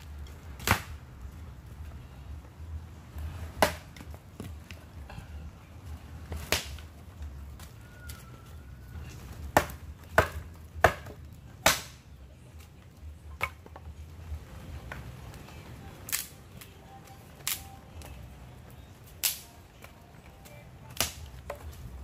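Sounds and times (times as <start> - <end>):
dry sticks snapping: 0.0 - 1.0, 6.3 - 6.9, 9.5 - 12.7, 16.0 - 22.0.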